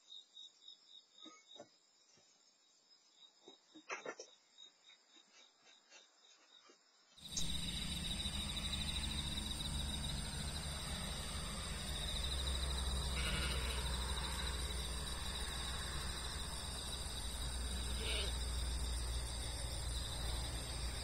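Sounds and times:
brief high insect call: 5.3 - 21.0
insects trilling in chorus: 7.2 - 21.0
low rumble: 7.3 - 21.0.

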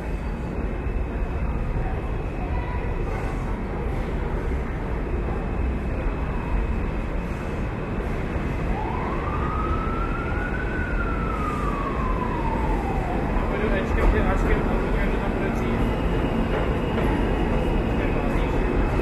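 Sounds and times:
siren wailing: 8.6 - 17.4.

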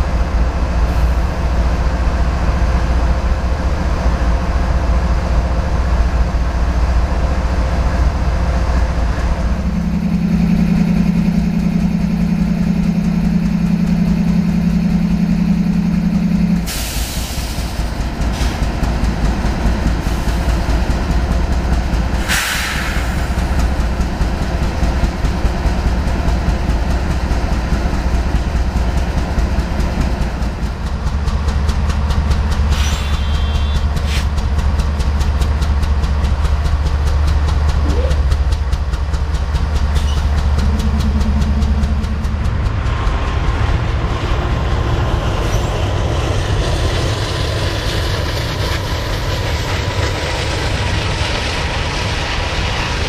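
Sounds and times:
diesel locomotives idling: 0.0 - 53.0
loud steady hum: 9.0 - 16.7, 32.5 - 34.4
air hiss: 22.2 - 23.2.

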